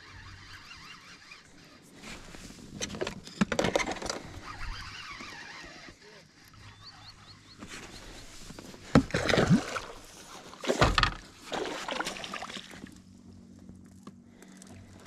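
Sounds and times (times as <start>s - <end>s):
water splashing against boat: 7.7s - 13.0s.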